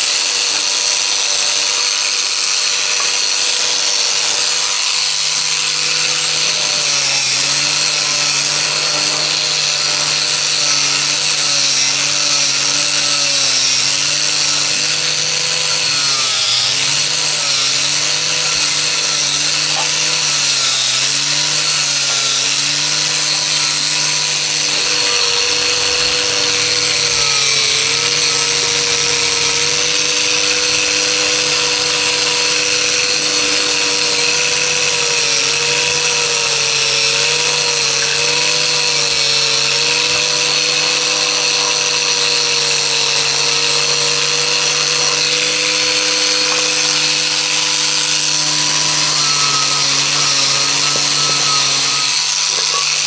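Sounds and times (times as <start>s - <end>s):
power tool humming with hiss: 0.0s - 53.0s.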